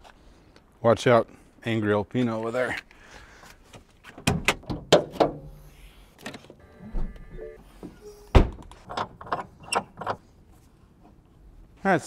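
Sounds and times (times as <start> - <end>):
car hood latch clicks and knocks: 4.2 - 5.5.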